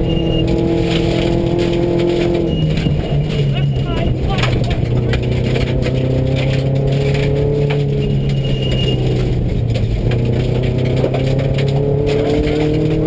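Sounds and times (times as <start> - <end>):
gravel rattling against car: 0.0 - 13.0
rally car engine: 0.0 - 13.0.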